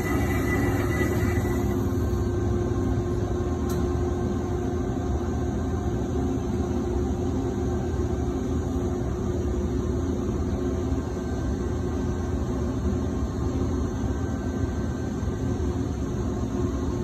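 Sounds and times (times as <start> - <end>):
band saw motor humming: 0.0 - 2.1.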